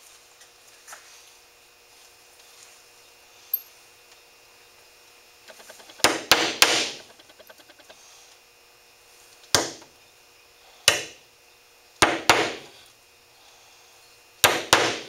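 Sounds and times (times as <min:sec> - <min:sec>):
hammer striking nails into wood: 0:05.6 - 0:07.1, 0:09.5 - 0:09.9, 0:10.9 - 0:11.2, 0:12.0 - 0:12.7, 0:14.4 - 0:15.0.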